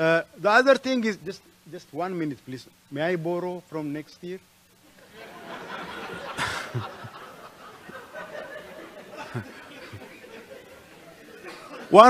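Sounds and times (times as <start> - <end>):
audience laughing: 5.0 - 12.0.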